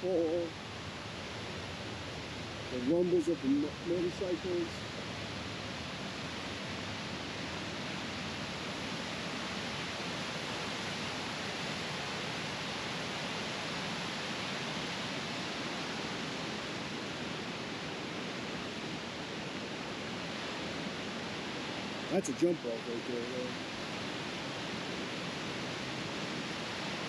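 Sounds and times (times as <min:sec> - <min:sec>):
waterfall rushing: 0:02.6 - 0:05.0.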